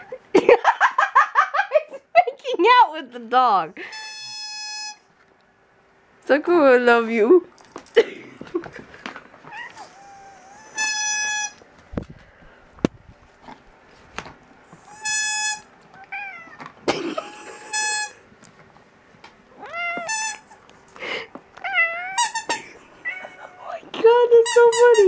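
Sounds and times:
squeaky toy squeaking: 3.9 - 5.0, 10.6 - 11.6, 14.9 - 15.7, 17.5 - 18.2, 20.0 - 20.5, 22.1 - 22.6, 24.3 - 25.0
cat meowing: 9.4 - 11.6, 14.8 - 16.7, 19.5 - 20.6, 21.6 - 23.7.

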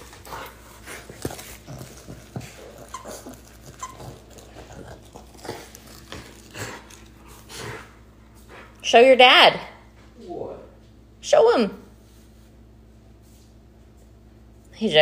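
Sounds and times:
dog chewing toy: 0.0 - 8.8.

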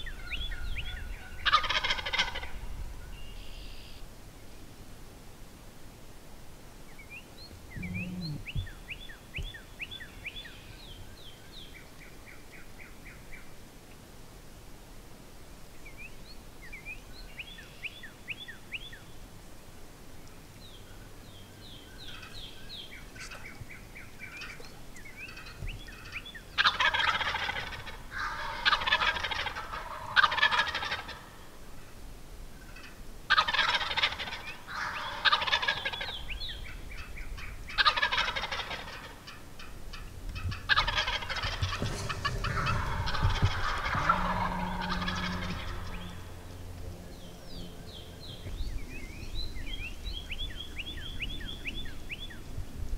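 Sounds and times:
turkeys gobbling loudly: 0.9 - 2.6, 25.3 - 31.9, 32.7 - 46.5
high-pitched small bird calls: 3.2 - 4.0, 7.0 - 10.8.

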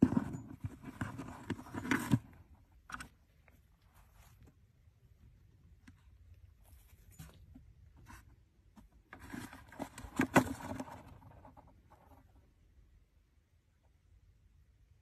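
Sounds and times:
scraping and rustling in plastic tub: 0.0 - 4.6, 6.6 - 12.2.

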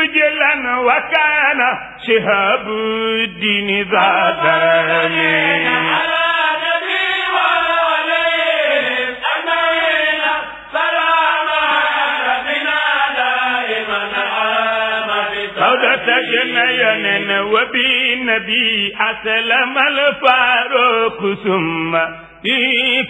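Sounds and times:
person chanting melismatic poem: 0.5 - 7.5, 8.5 - 23.0.

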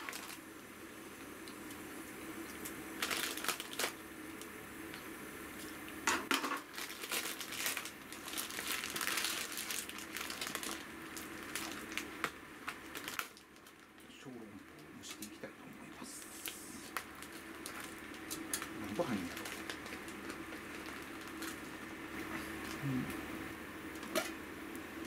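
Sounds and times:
plastic packaging crinkling: 0.0 - 0.4, 2.5 - 4.5, 6.6 - 15.4, 16.2 - 22.8.

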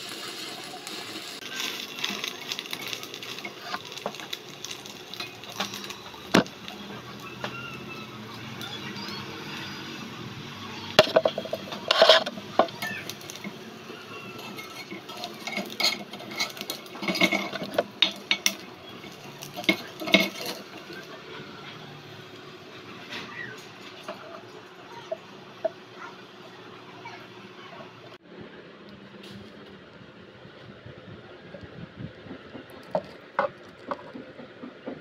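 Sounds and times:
metal spatula scraping a wok: 11.0 - 13.5, 14.2 - 21.1.

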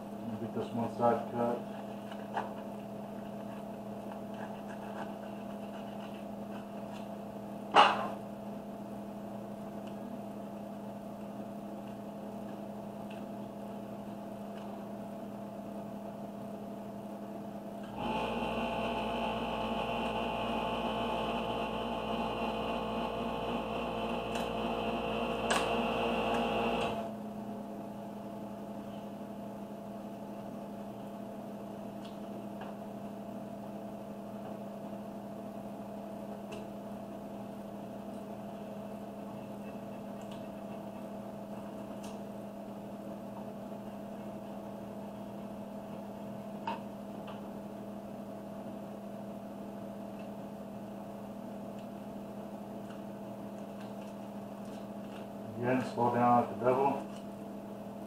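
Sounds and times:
electrical hum: 5.7 - 58.0
machine whir with high whine: 17.9 - 27.2.

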